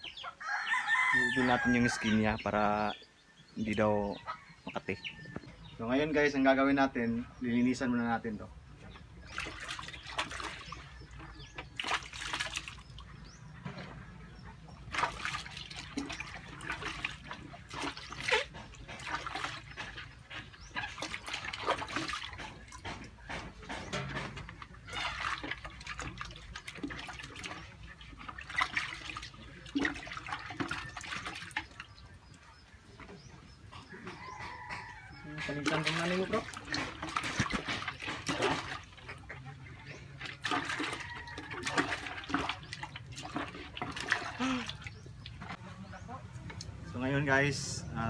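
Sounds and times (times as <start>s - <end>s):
water sloshing in a bucket: 1.0s - 48.0s.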